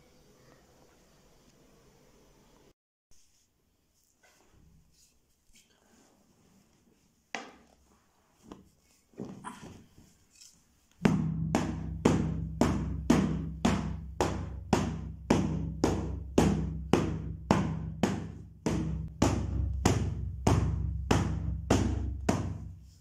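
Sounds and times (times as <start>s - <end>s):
steady drum beat: 11.0s - 22.9s.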